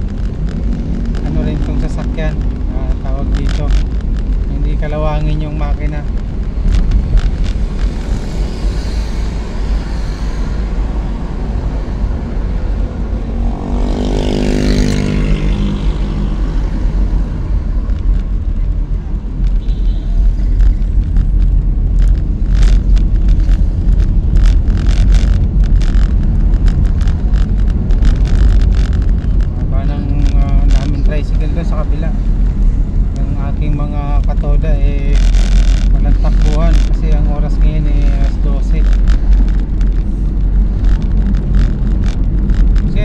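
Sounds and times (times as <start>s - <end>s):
sharp clicks and knocks: 0.0s - 8.4s, 20.4s - 43.0s
car engine and road noise: 0.0s - 43.0s
vehicle passing by: 7.9s - 18.1s.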